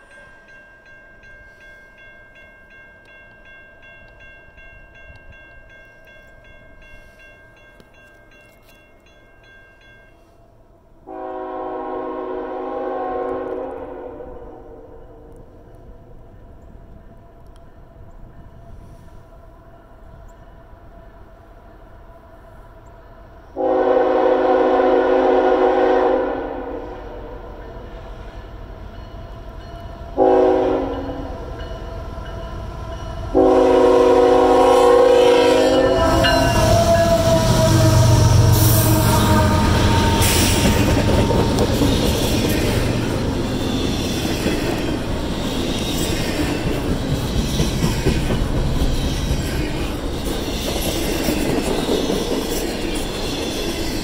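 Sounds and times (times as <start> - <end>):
train horn blasts: 11.0 - 15.4, 23.6 - 27.8, 30.2 - 31.4, 33.2 - 41.9
locomotive engine passing: 27.0 - 54.0
train cars rumbling and clacking: 27.6 - 54.0.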